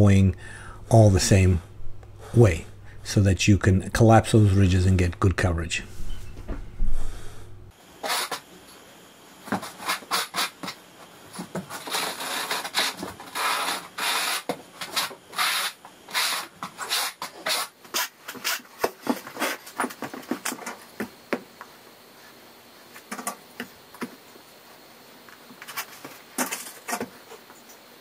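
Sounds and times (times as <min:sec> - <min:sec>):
trowel scraping mortar: 0:11.6 - 0:19.9.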